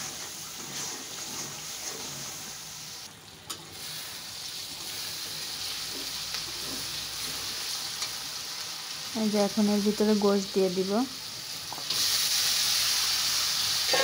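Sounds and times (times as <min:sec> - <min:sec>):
metal spatula scraping: 0:00.0 - 0:02.7
paste sizzling in hot oil: 0:00.0 - 0:03.1, 0:03.7 - 0:14.0.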